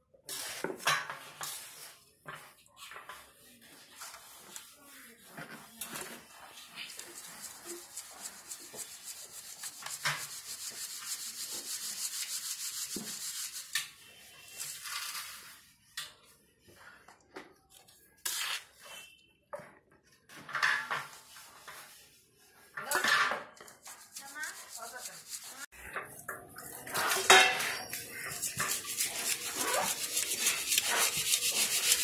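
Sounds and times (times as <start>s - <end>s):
flour rasping through metal sieve: 0.3s - 15.6s, 23.8s - 25.7s, 26.9s - 32.0s.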